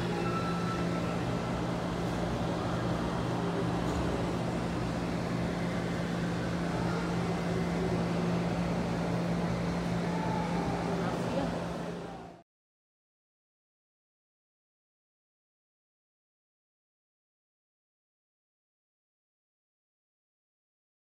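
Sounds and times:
broad background noise: 0.0s - 12.4s.

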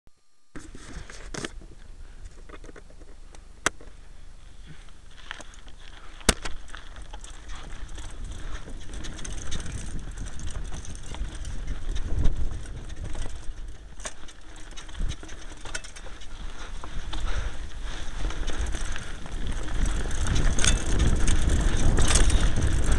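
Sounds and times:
bike tyre noise on dirt: 0.5s - 22.9s
bike chain and frame rattling: 4.7s - 22.9s
wind rumble on microphone: 6.6s - 22.9s.

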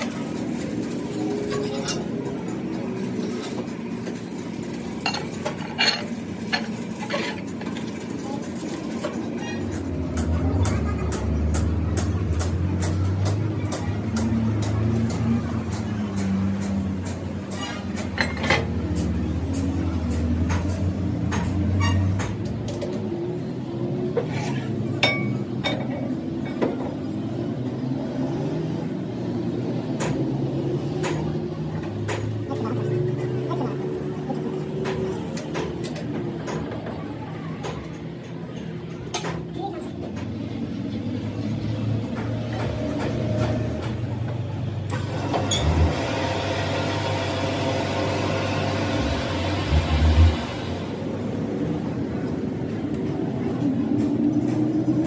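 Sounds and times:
engine-like hum: 0.0s - 55.0s.

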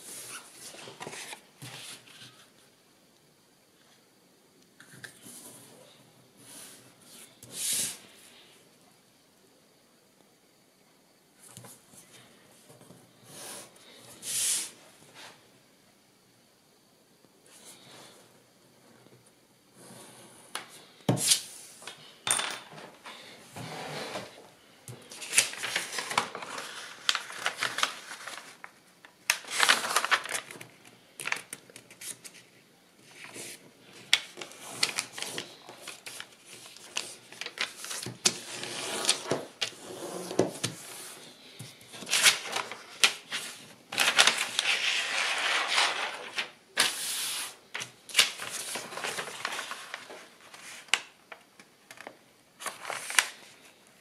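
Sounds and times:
paper rustling and crackling: 25.0s - 41.1s, 41.8s - 53.8s.

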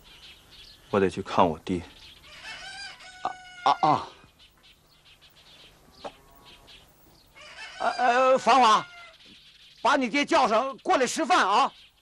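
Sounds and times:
rooster crowing: 2.2s - 4.2s, 7.4s - 9.2s.

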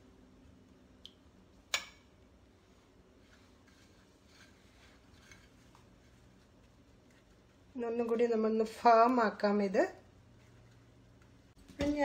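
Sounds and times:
faint food handling sounds: 2.5s - 8.2s, 10.1s - 11.8s.

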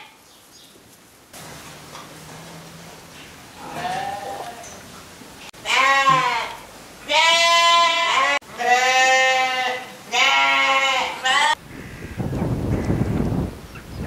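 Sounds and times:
young farm animals bleating: 2.2s - 4.8s, 5.6s - 12.2s.

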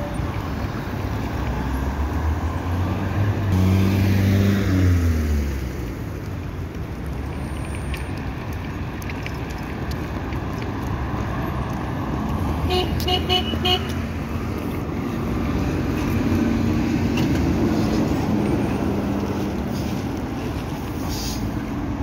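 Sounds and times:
trolleybus driving past: 10.9s - 22.0s
short hiss: 20.9s - 21.6s.

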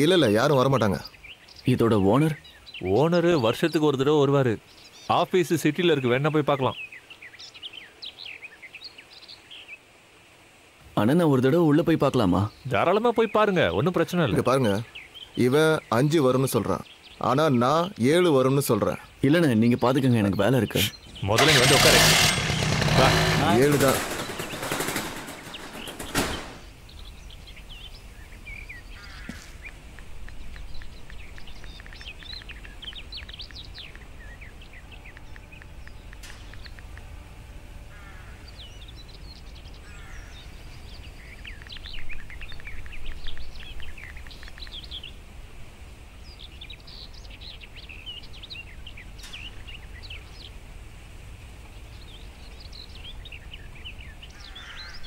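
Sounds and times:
small birds chirping: 0.0s - 55.0s
brief clatter: 21.4s - 26.7s.

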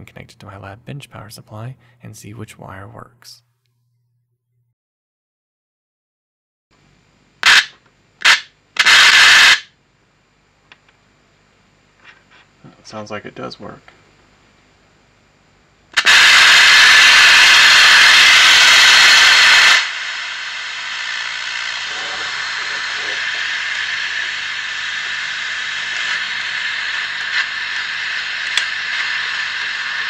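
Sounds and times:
radio static hiss: 7.4s - 9.8s, 16.0s - 30.0s.

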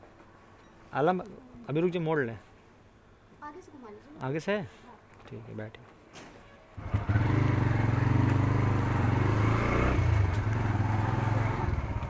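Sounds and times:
motorcycle engine starting and running: 6.8s - 12.0s.

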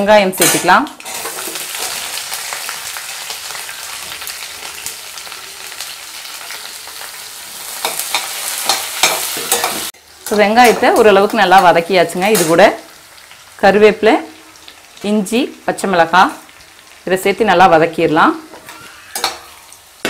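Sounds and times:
onions sizzling in hot oil: 0.0s - 20.0s
metal spoon scraping a pan: 0.4s - 2.3s, 7.6s - 11.6s, 18.5s - 19.7s.

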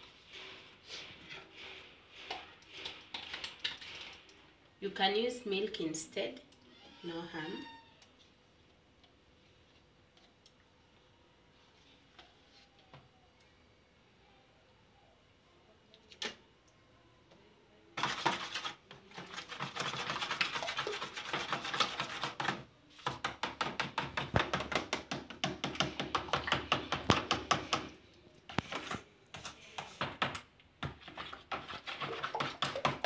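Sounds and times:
utensil scraping plastic bowl: 18.0s - 23.1s, 28.5s - 30.3s, 30.9s - 33.0s.

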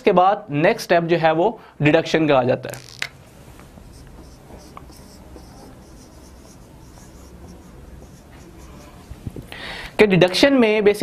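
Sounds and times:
marker scratching on whiteboard: 3.7s - 9.5s.

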